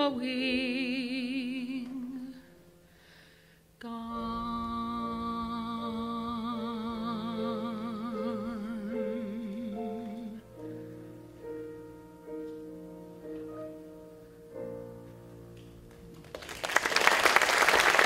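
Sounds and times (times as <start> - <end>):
piano chords: 3.9 - 16.7
audience applause: 16.2 - 18.0.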